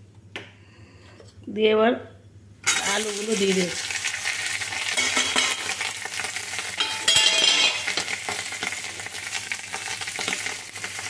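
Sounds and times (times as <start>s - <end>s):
potatoes sizzling in oil: 2.7s - 11.0s.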